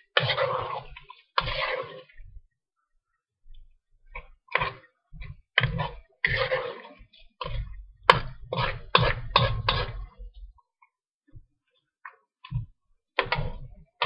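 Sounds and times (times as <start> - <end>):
metal spoon scraping a wok: 0.0 - 2.2, 5.6 - 10.2.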